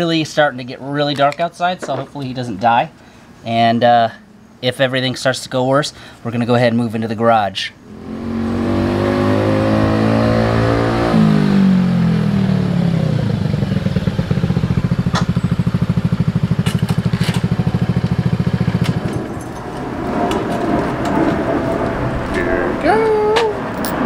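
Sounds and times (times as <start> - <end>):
scooter engine idling: 12.4 - 19.4.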